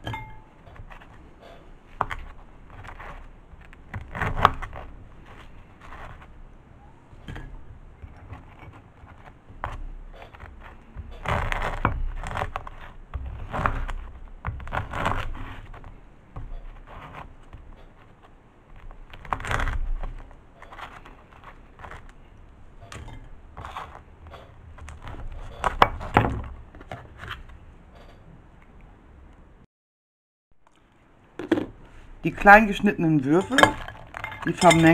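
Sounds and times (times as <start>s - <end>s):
knife crunching through bread crust: 1.9s - 6.5s, 8.0s - 22.5s.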